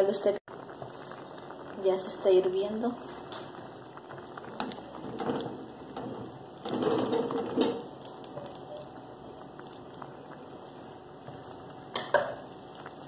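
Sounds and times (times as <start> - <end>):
stew bubbling in a pan: 0.0 - 13.0
spatula stirring and scraping: 2.9 - 13.0.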